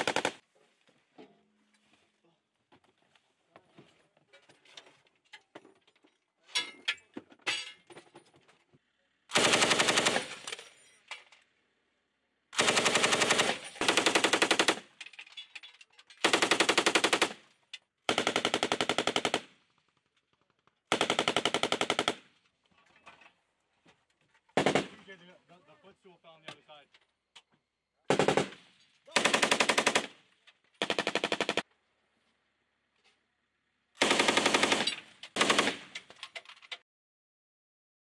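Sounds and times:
machine gun firing bursts: 0.0s - 0.4s, 9.3s - 10.5s, 12.6s - 14.9s, 16.2s - 17.4s, 18.1s - 19.5s, 20.9s - 22.2s, 24.6s - 25.0s, 28.1s - 30.2s, 30.8s - 31.6s, 34.0s - 36.0s.

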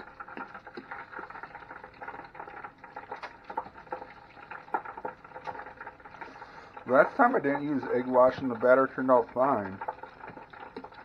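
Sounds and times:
oil crackling in deep fryer: 0.0s - 11.0s.

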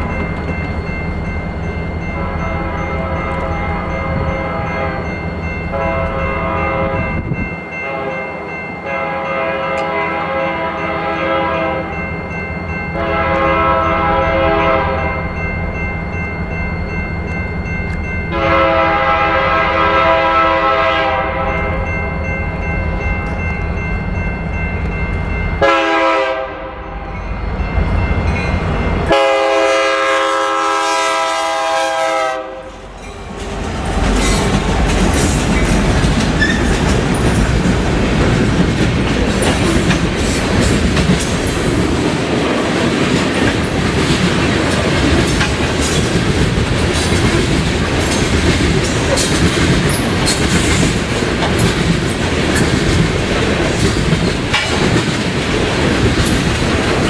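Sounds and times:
crossing bell ringing: 0.0s - 57.0s
train air horn blasts: 2.1s - 5.0s, 5.7s - 8.2s, 8.8s - 11.9s, 13.0s - 15.2s, 18.3s - 21.8s, 25.6s - 27.1s, 29.1s - 32.9s.

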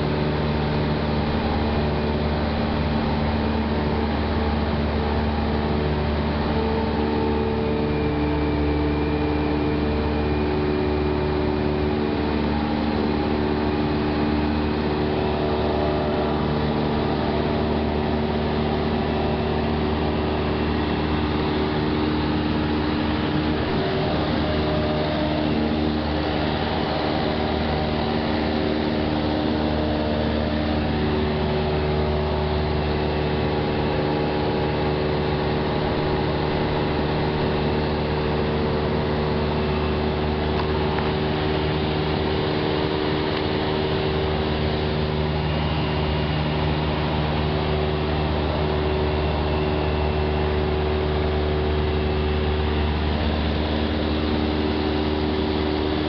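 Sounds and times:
airplane engine hum in cabin: 0.0s - 56.0s.

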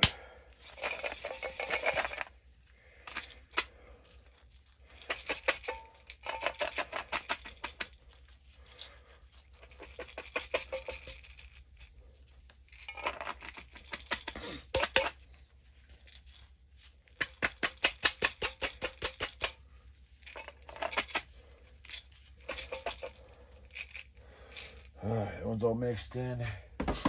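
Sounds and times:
grain rattling in glass jar: 0.6s - 19.6s, 20.2s - 25.0s.

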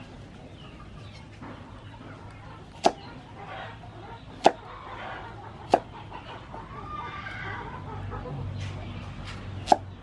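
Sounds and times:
cleaver chopping on wooden block: 2.7s - 3.0s, 4.4s - 4.6s, 5.7s - 5.9s, 9.6s - 9.9s.

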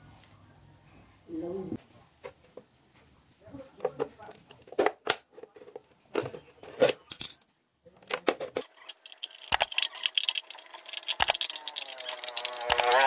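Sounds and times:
scissors snipping plastic: 11.0s - 13.0s.

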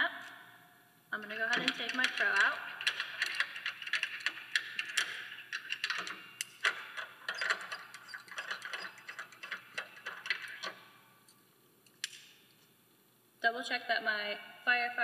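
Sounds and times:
carabiners and chain clinking: 1.5s - 10.9s.

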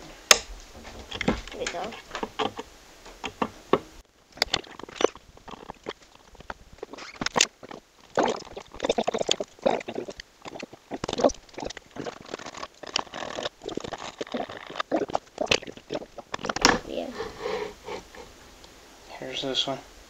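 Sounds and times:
hands handling wooden parts: 0.3s - 8.2s.

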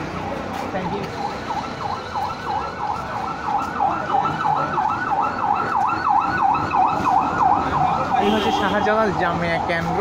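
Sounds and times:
emergency siren yelping: 1.0s - 8.6s.

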